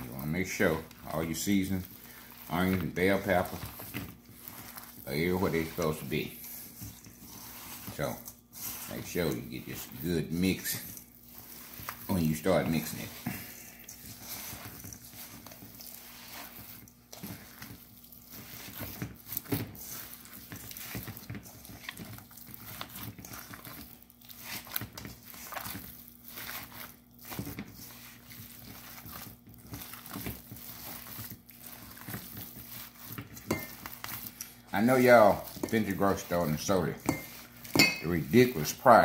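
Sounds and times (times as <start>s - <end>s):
hand squishing raw meat: 0.0s - 39.0s.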